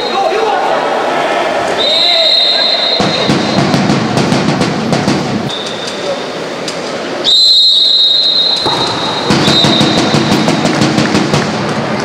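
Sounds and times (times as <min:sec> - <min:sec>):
pool hall noise: 0:00.0 - 0:12.0
referee's whistle: 0:01.8 - 0:03.7, 0:05.5 - 0:06.1, 0:07.2 - 0:10.6.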